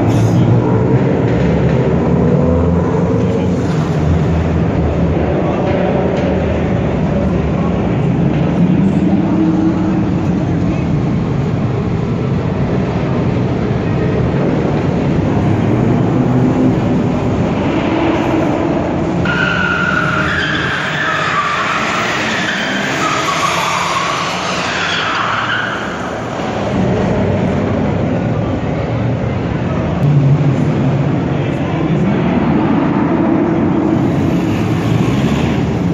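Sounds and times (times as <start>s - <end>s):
car engines revving: 0.0s - 35.9s
tyres squealing: 18.5s - 26.4s.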